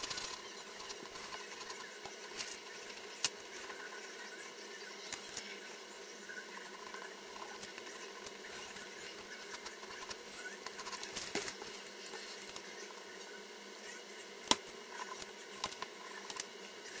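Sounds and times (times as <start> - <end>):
drawing tool scratching paper: 9.4 - 11.2.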